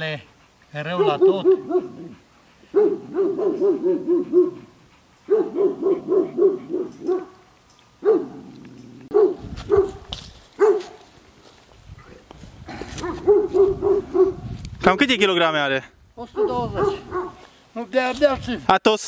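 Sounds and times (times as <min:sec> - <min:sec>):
dog barking: 0:00.9 - 0:04.7, 0:05.3 - 0:08.5, 0:09.1 - 0:10.0, 0:10.6 - 0:11.0, 0:13.0 - 0:14.4, 0:16.4 - 0:17.4.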